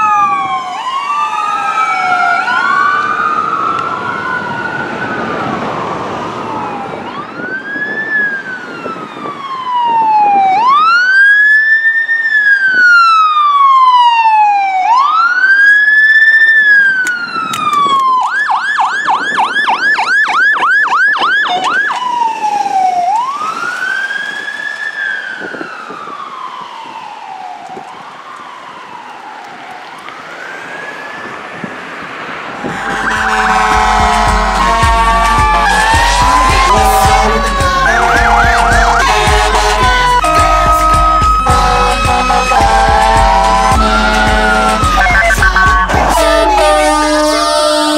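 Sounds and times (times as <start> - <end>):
emergency siren wailing: 0.0 - 47.9
loud different sound: 32.6 - 47.1.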